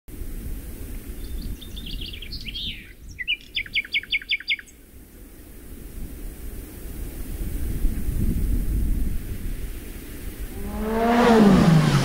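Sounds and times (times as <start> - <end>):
bird singing: 1.2 - 4.8
low steady rumble: 4.9 - 12.0.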